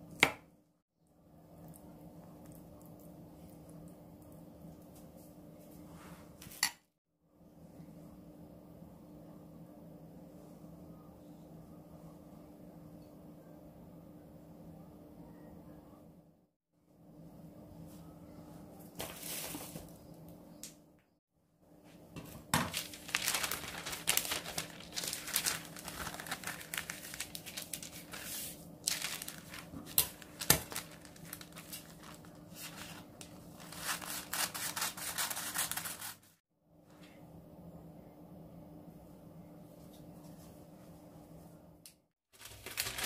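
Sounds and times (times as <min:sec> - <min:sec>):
baking paper crinkling: 0:22.3 - 0:36.4, 0:42.4 - 0:43.0.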